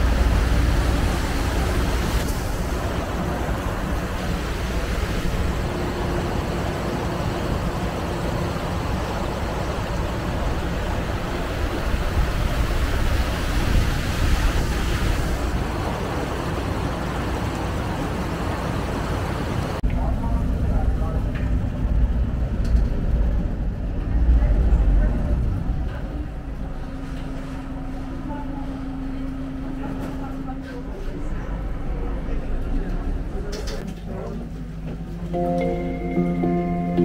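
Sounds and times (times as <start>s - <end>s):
water rushing along hull: 0.0s - 22.3s
boat engine rumble: 0.0s - 37.0s.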